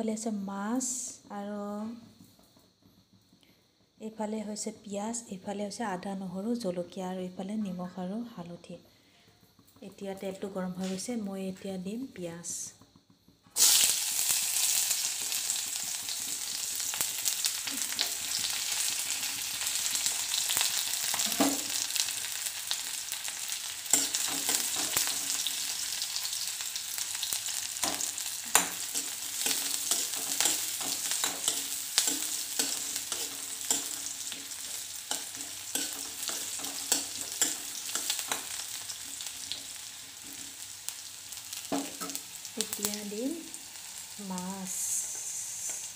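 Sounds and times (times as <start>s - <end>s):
onions sizzling in hot oil: 12.4s - 45.9s
spoon scraping against pan: 23.3s - 40.4s.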